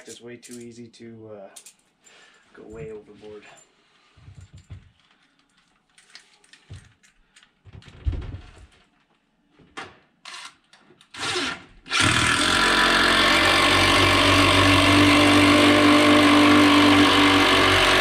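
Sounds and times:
cordless impact driver running: 11.2 - 18.0.

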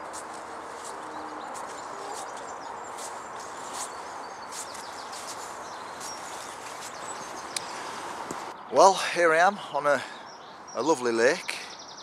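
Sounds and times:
footsteps on grass: 0.0 - 8.5
small birds chirping: 0.0 - 12.0
steady outdoor hiss: 0.0 - 12.0.

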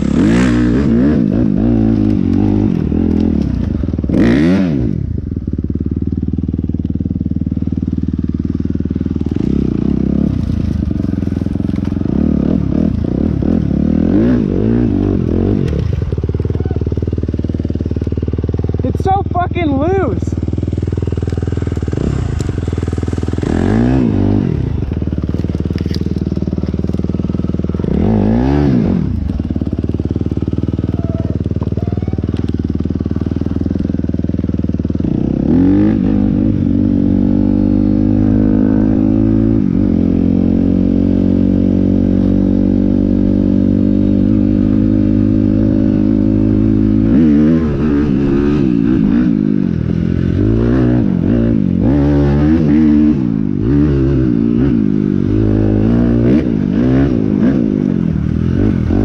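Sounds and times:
motorcycle engines revving: 0.0 - 59.0.

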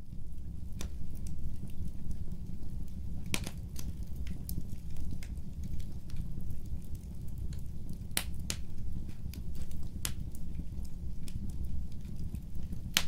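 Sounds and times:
fire crackling and popping: 0.0 - 13.0
low steady rumble: 0.0 - 13.0.

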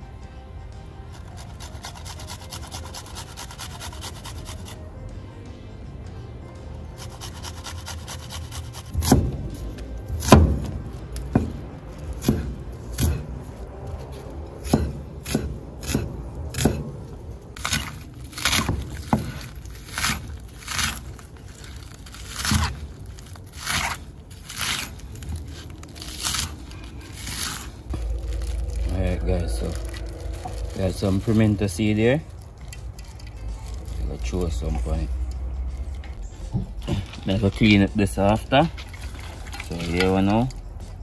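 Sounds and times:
knife chopping on wooden board: 8.7 - 9.5, 10.2 - 13.3, 14.6 - 17.0, 17.6 - 21.0.

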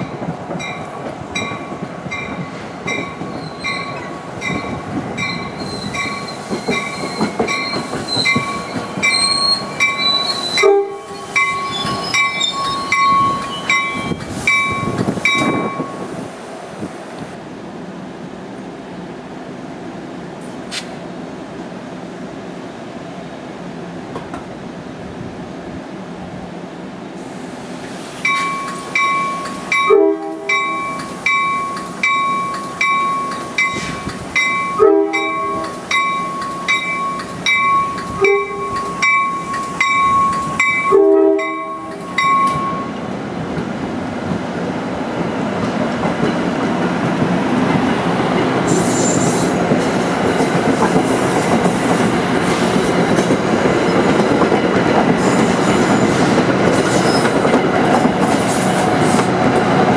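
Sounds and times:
crossing warning bell ringing: 0.0 - 16.0, 28.2 - 43.0
train wheels rumbling: 0.0 - 25.5, 27.1 - 59.9
train horn blasts: 10.6 - 11.3, 29.8 - 30.9, 34.7 - 35.8, 38.2 - 38.8, 40.8 - 42.9.

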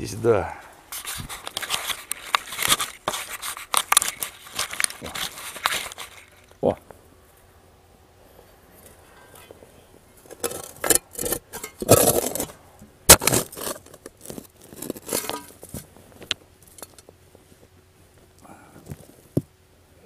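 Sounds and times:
shovel digging into soil: 10.5 - 12.5, 13.1 - 15.6.

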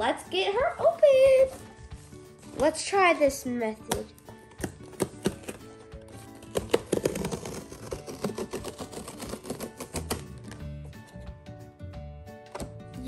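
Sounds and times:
background music: 0.0 - 13.0
cardboard tear strip pulled: 4.9 - 10.6.

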